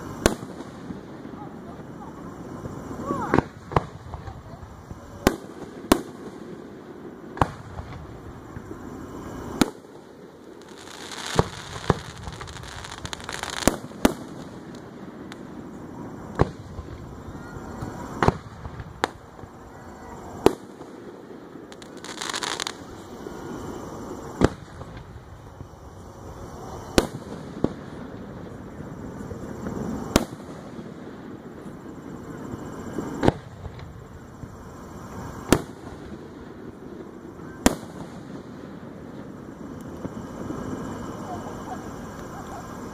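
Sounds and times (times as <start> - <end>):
firework shells bursting: 0.0 - 28.7.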